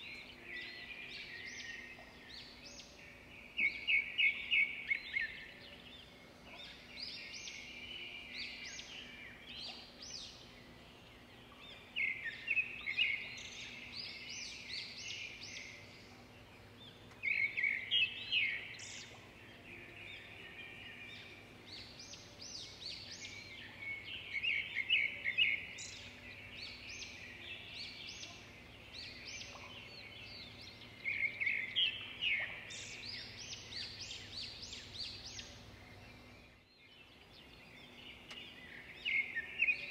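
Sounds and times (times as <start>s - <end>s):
songbirds singing: 0.0s - 39.9s.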